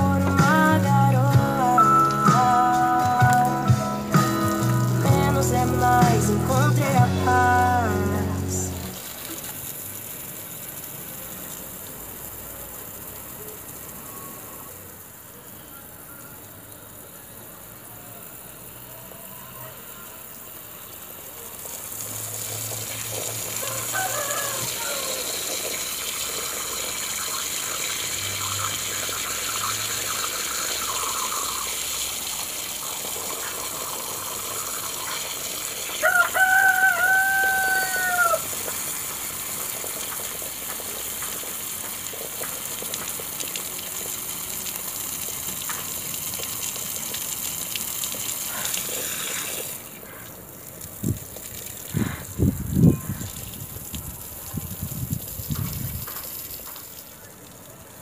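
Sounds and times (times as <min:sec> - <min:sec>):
water spraying hiss: 0:00.0 - 0:58.0
rooster crowing: 0:17.2 - 0:20.3, 0:23.4 - 0:25.6, 0:35.9 - 0:38.7.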